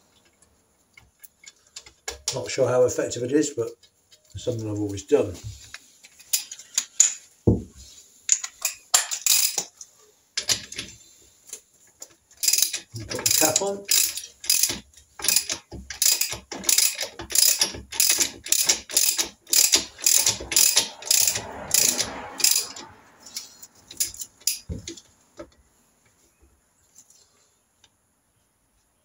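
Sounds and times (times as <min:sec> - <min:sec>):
ratchet wrench clicking: 0:09.2 - 0:09.6, 0:12.4 - 0:24.7.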